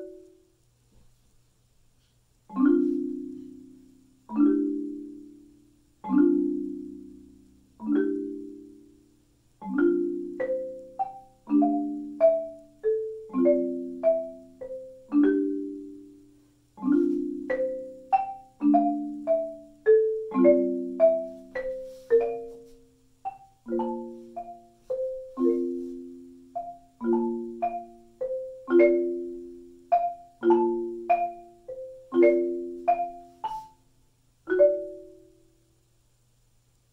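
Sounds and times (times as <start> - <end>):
marimba playing: 0.0 - 0.4, 2.5 - 9.0, 9.6 - 33.8, 34.5 - 35.4.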